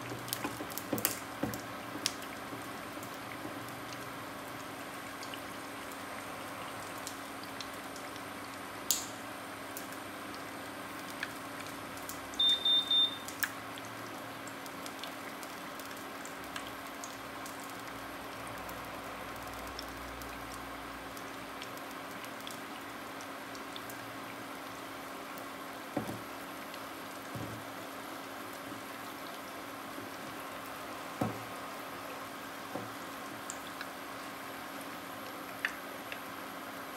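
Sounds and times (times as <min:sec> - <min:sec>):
oil sizzling in frying pan: 0:00.0 - 0:36.9
short high electronic beeps: 0:12.4 - 0:13.2.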